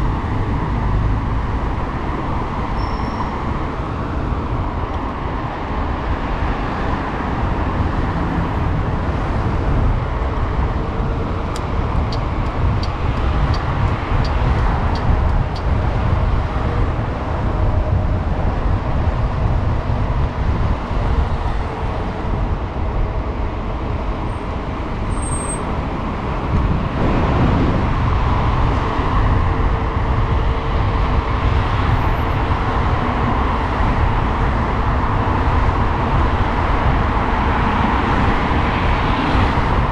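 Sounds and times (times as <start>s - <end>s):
traffic: 0.0s - 39.9s
wind and road noise: 0.0s - 39.9s.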